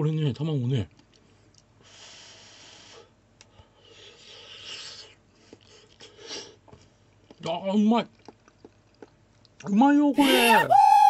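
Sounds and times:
breathing through nose while chewing: 1.2 - 7.4.

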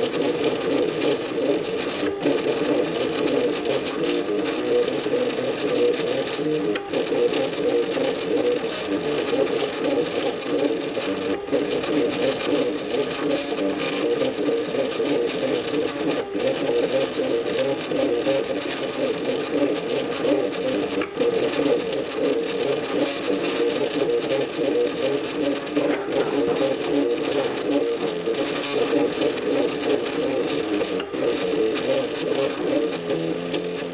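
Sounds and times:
stepper motors whirring: 0.0 - 33.9.

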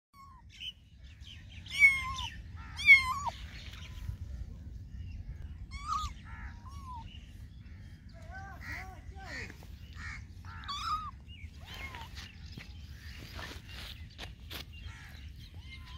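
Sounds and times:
kittens meowing: 1.7 - 3.5, 5.5 - 7.1, 10.5 - 12.2
steady low rumble: 2.3 - 15.9.

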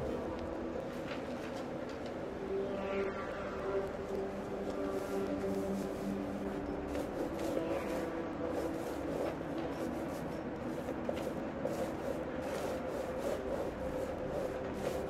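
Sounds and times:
paint roller rubbing on paper: 4.6 - 15.0.

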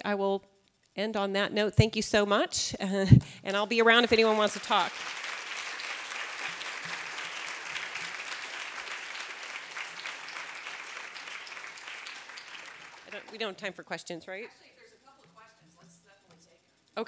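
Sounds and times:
audience applauding: 3.8 - 13.6.

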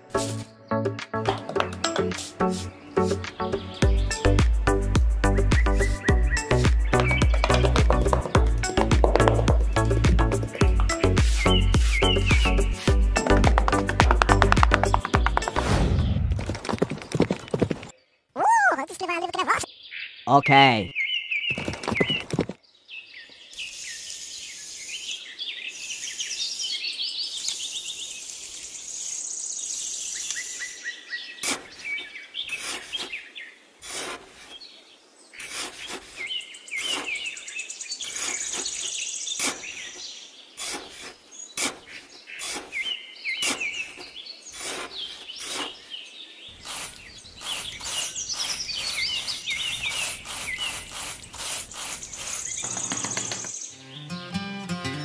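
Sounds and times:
trowel scraping in sand: 0.2 - 0.5, 2.0 - 2.7, 11.0 - 12.9, 31.4 - 34.8, 35.4 - 37.4, 38.0 - 53.6
small birds chirping: 0.2 - 54.9.

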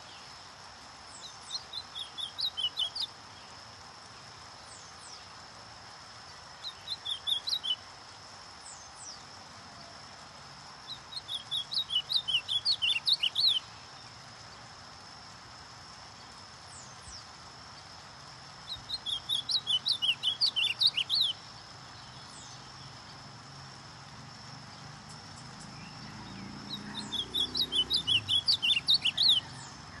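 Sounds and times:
bird singing sharp whistled notes: 6.7 - 7.8, 11.1 - 13.6, 18.7 - 21.4, 25.8 - 30.0.

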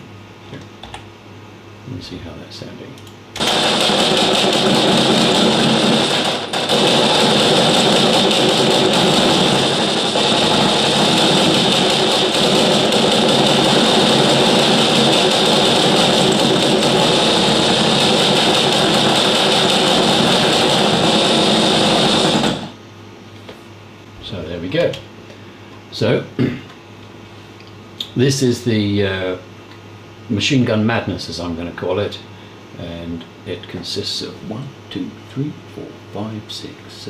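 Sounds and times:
machine guns firing: 3.4 - 22.8.

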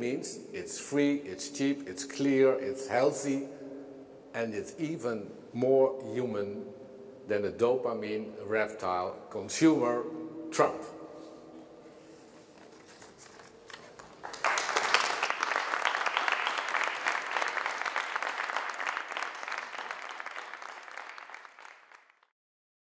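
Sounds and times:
audience applauding: 13.9 - 22.3.

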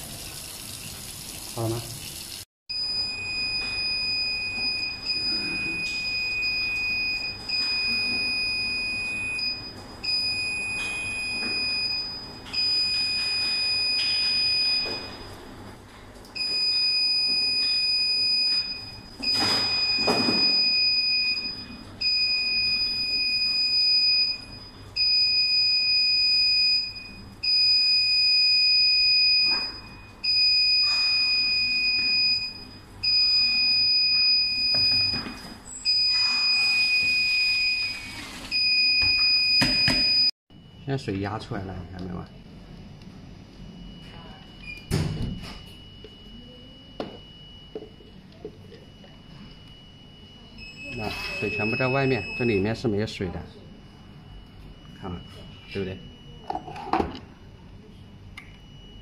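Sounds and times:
steady high beep: 45.5 - 52.8.

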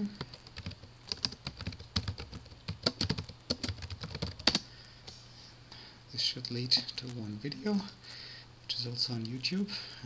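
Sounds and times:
computer keyboard typing: 0.0 - 4.7.

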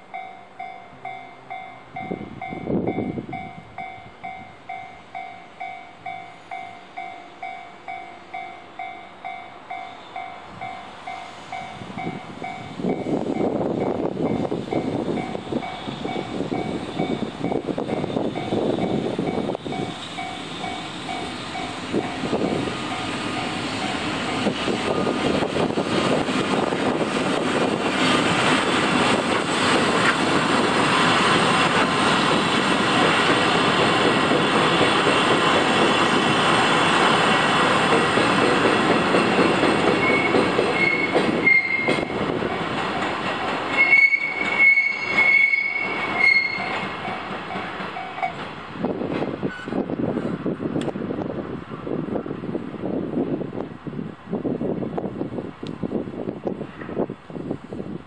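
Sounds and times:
level crossing warning bell: 0.0 - 25.2
train wheels rumbling on rails: 0.0 - 58.0
high wheel squeal: 14.5 - 25.5, 40.0 - 42.2, 43.7 - 46.8.

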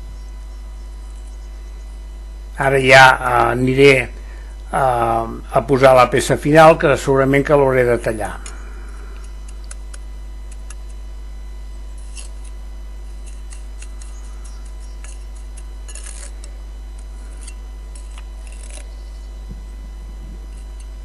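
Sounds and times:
steady low hum: 0.0 - 21.0
trowel scraping brick and mortar: 12.0 - 12.6, 13.2 - 19.1.

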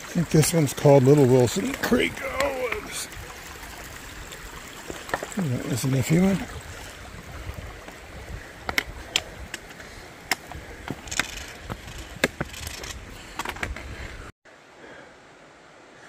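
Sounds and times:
creek water washing: 0.0 - 16.0
footsteps on loose rocks: 8.6 - 14.1.

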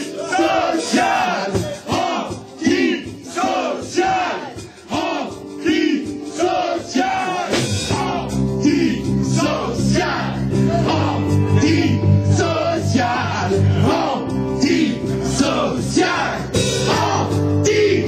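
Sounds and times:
amplified rock backing: 0.0 - 18.0
men singing rock song: 0.0 - 18.0
steady low bass: 7.6 - 18.0.

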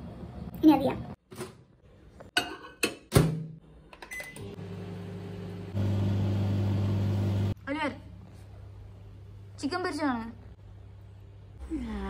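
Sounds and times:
microwave electrical hum: 3.6 - 12.0.

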